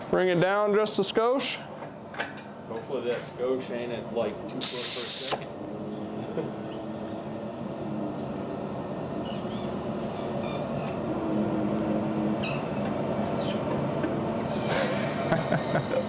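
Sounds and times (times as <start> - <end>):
engine hoist mechanical drone: 0.0 - 16.0
short hiss: 4.6 - 5.4.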